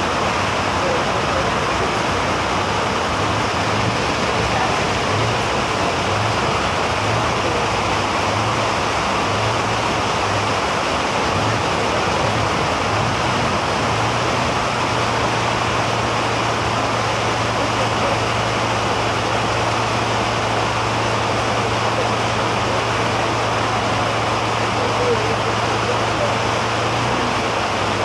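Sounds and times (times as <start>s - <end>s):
floodwater rushing: 0.0s - 28.0s.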